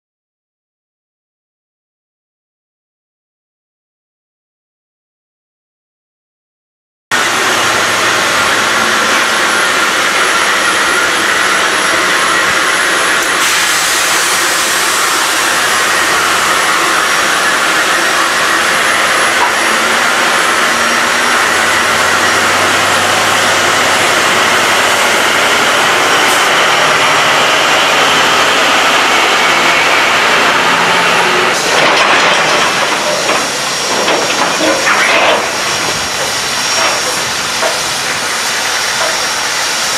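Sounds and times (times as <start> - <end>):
steam locomotive hissing: 7.1 - 39.9.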